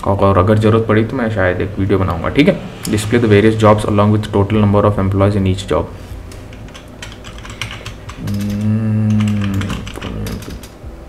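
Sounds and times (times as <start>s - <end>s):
typing on computer keyboard: 6.4s - 10.8s
man humming: 8.1s - 10.8s.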